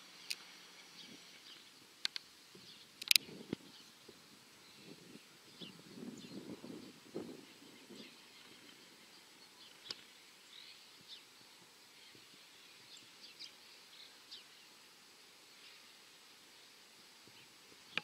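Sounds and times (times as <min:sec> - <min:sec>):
faint bird chirps: 0:00.0 - 0:18.0
sharp click: 0:03.0 - 0:03.3.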